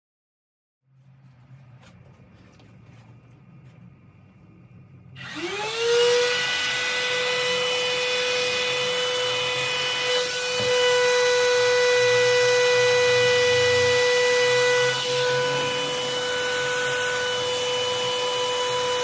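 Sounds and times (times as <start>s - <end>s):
heat gun fan whining: 5.1s - 19.0s.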